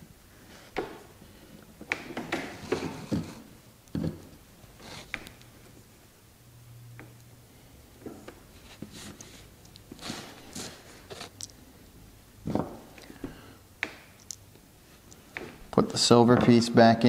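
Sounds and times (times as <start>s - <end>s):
small parts clicking and rustling: 9.1s - 11.6s, 14.2s - 15.2s.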